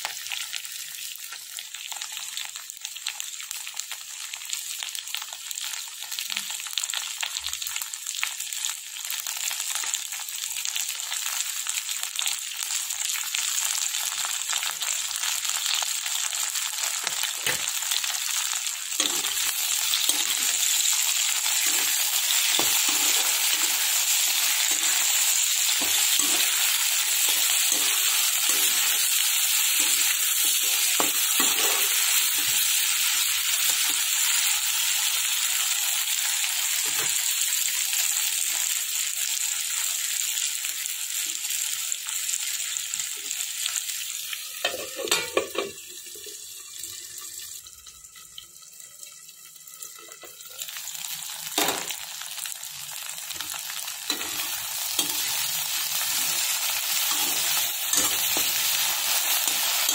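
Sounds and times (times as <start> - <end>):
potatoes sizzling in hot oil: 0.0 - 59.9
spatula scraping a pan: 19.0 - 32.8, 54.1 - 59.9.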